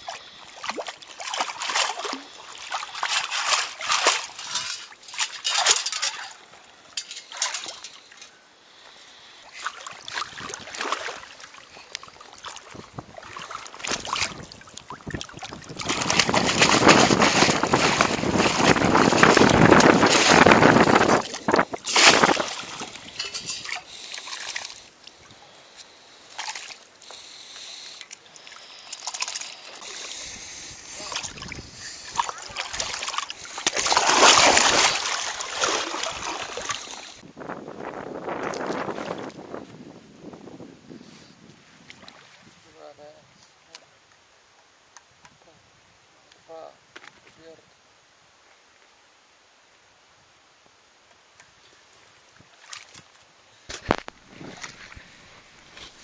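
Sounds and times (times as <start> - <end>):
hard churning of water: 0.0 - 6.4, 9.6 - 24.8, 28.9 - 37.2
water splashing and sloshing: 0.0 - 8.3, 9.5 - 25.4, 26.2 - 27.2, 28.0 - 37.2, 41.8 - 42.5, 52.4 - 56.0
sharp splash: 0.6 - 6.4, 9.6 - 11.6, 12.4 - 24.8, 30.9 - 37.2
metal scoop sifting sand: 3.2 - 6.4.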